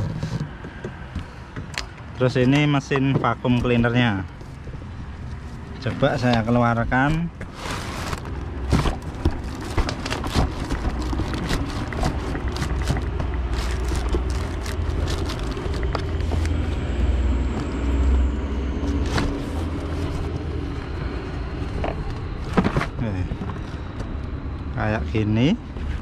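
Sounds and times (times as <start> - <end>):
steady low rumble: 0.0 - 26.0
cardboard flaps rustling: 6.2 - 16.6.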